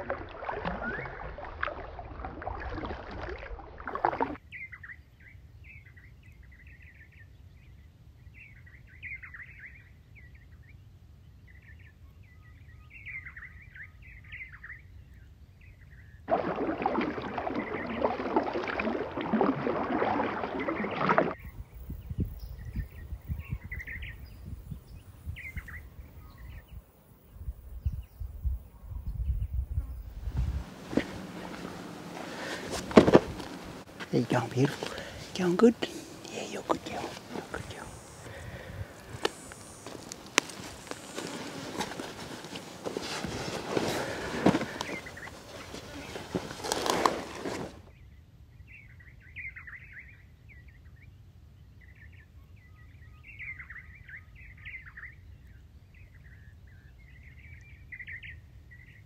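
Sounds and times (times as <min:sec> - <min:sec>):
canoe paddle in water: 0:00.0 - 0:04.4, 0:16.3 - 0:21.6, 0:30.1 - 0:47.9
birds chirping and calling: 0:30.9 - 0:47.0.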